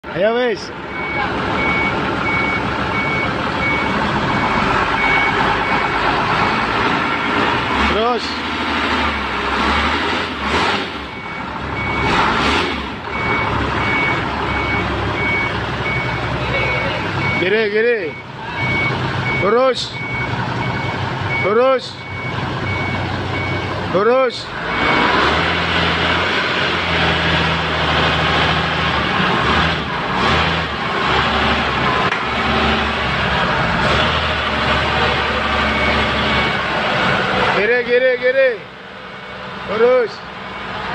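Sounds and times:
forklift engine running: 0:00.1 - 0:40.9
reversing alarm beeping: 0:00.9 - 0:07.5, 0:11.0 - 0:12.2, 0:13.1 - 0:23.8, 0:24.4 - 0:25.1, 0:35.4 - 0:36.6.

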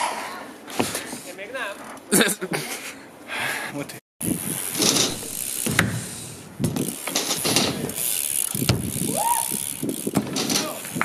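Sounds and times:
bike tyres rolling on concrete: 0:04.2 - 0:11.0
freewheel ratcheting: 0:04.2 - 0:11.0
bike landing knocks: 0:04.6 - 0:11.0.

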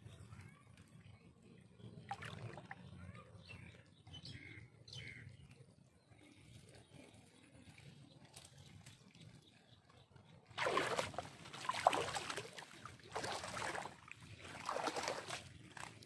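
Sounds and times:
water sloshing and splashing: 0:02.0 - 0:03.0, 0:10.4 - 0:16.0.

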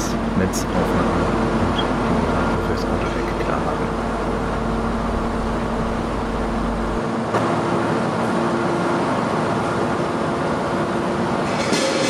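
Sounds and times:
ship engines humming: 0:00.0 - 0:07.0
steady tones: 0:00.0 - 0:07.0.

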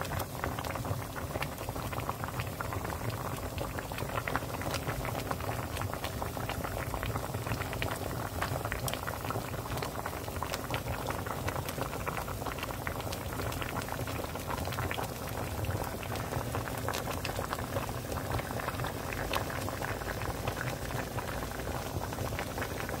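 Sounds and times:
soup boiling and bubbling: 0:00.0 - 0:23.0.

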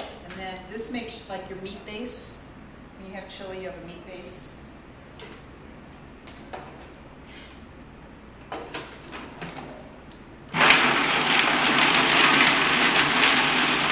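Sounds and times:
food processor chopping: 0:10.6 - 0:13.9.

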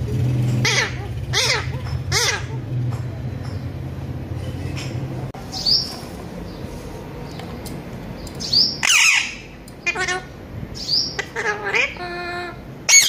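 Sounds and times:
parakeet squawking: 0:00.5 - 0:02.8, 0:08.4 - 0:13.0.

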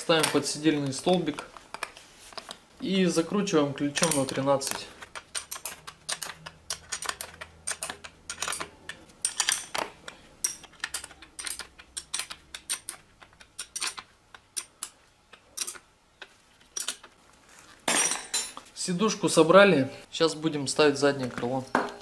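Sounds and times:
wrench clicking on bolt: 0:05.3 - 0:09.8.

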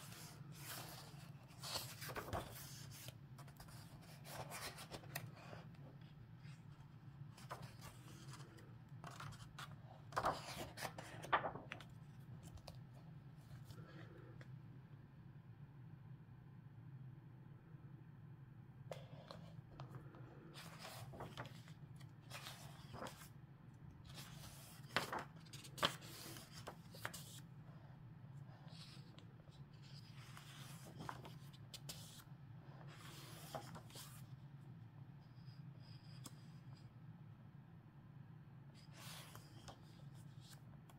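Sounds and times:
book pages turning: 0:00.0 - 0:14.2, 0:18.9 - 0:23.4, 0:24.1 - 0:27.5, 0:28.6 - 0:34.3, 0:38.8 - 0:40.6
low steady hum: 0:00.0 - 0:40.9.

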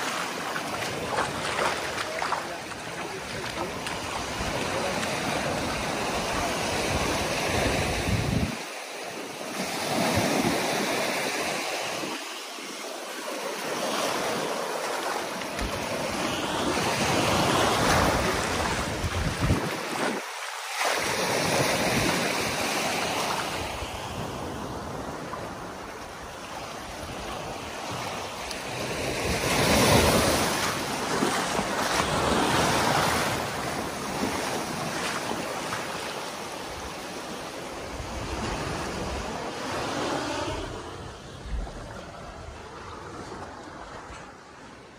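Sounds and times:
small waves on beach: 0:00.0 - 0:44.9
wind on microphone: 0:03.2 - 0:08.7, 0:15.6 - 0:20.3.

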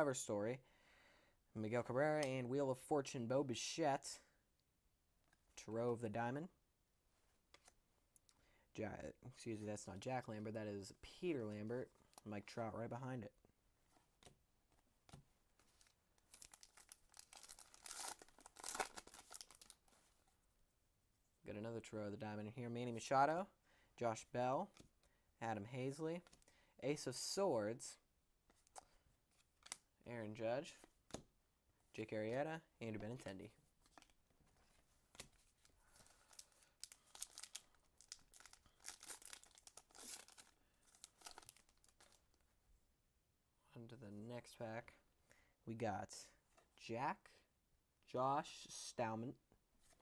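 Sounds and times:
wrapper tearing and crinkling: 0:16.3 - 0:19.8, 0:36.2 - 0:42.2.

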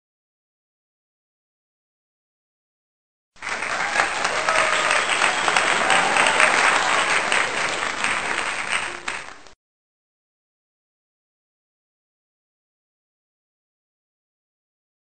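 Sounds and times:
crowd applauding: 0:03.4 - 0:09.6.

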